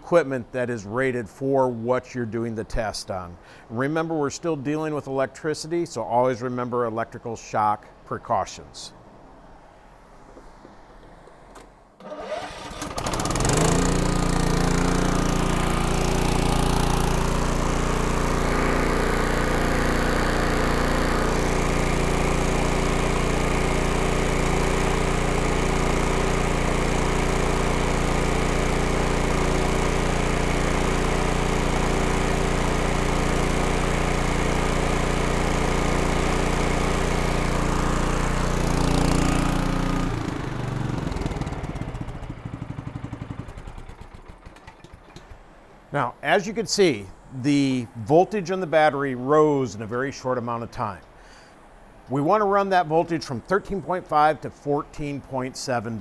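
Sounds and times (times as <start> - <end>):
engine starting and running: 11.4 - 45.9.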